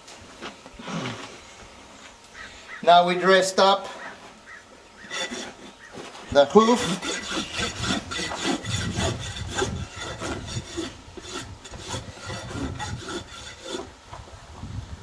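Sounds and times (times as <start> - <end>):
rasp scraping hoof: 3.9 - 14.0.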